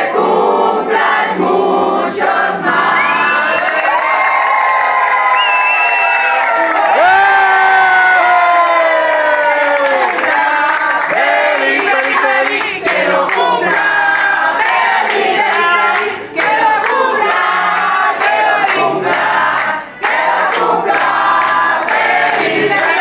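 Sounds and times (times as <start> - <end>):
crowd singing: 0.0 - 3.9, 8.8 - 23.0
hands clapping: 8.7 - 23.0.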